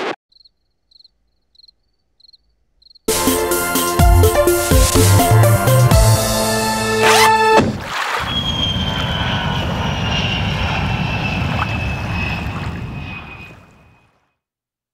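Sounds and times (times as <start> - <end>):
aircraft passing overhead: 8.1 - 14.2.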